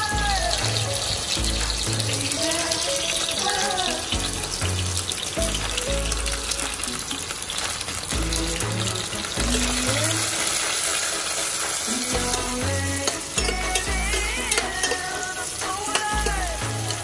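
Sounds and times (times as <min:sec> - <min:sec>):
vegetables sizzling in hot oil: 0:00.0 - 0:17.0.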